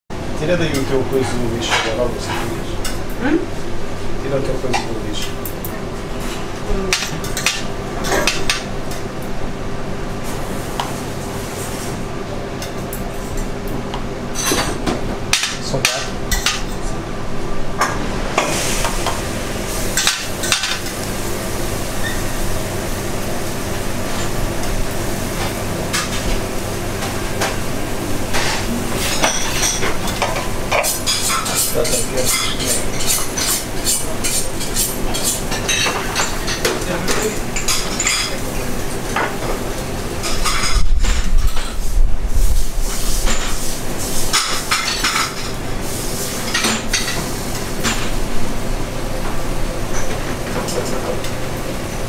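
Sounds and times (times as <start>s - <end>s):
steady kitchen hum: 0.1s - 52.0s
metal utensils and plates clattering: 28.3s - 38.4s.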